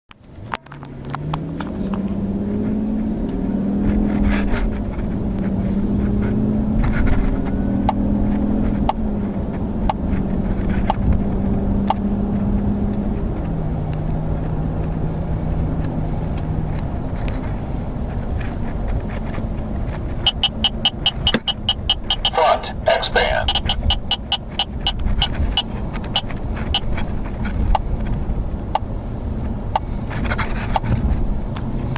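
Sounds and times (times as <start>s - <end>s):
road noise: 0.1s - 31.9s
car engine accelerating: 0.2s - 31.9s
short beeps: 20.2s - 25.0s.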